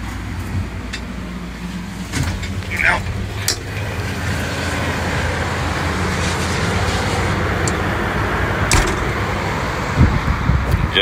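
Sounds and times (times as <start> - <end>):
rushing outside air: 0.0 - 11.0
door latch click: 8.7 - 9.2.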